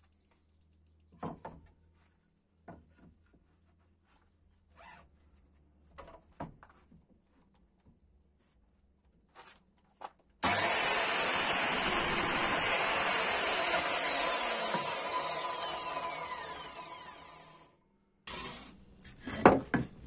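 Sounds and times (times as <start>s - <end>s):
miter saw cutting wood: 10.4s - 17.7s, 18.3s - 18.8s
saw blade spinning down whine: 10.4s - 17.7s.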